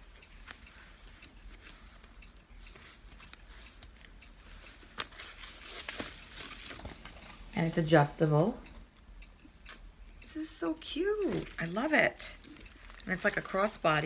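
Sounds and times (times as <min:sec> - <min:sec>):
fabric strap rustling: 0:00.0 - 0:07.8, 0:10.7 - 0:14.0.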